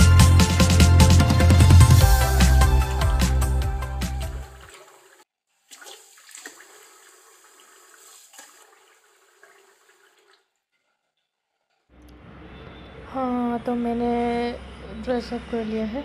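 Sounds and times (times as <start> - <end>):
background music: 0.0 - 4.7
water running: 2.1 - 10.6.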